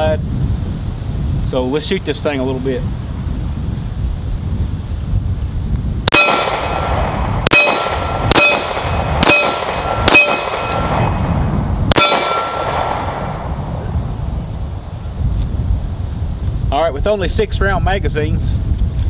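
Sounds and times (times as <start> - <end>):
pistol shots: 6.1 - 11.2, 11.9 - 13.5
steel target ringing clang: 6.1 - 11.2, 11.9 - 13.5.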